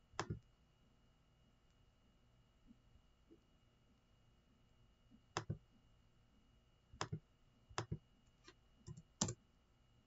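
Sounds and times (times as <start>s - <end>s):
mouse and keyboard clicks: 7.8s - 9.4s.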